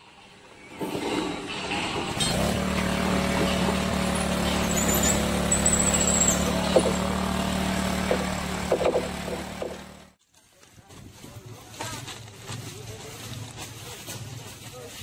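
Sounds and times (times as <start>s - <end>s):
engine running steadily: 2.2s - 10.2s.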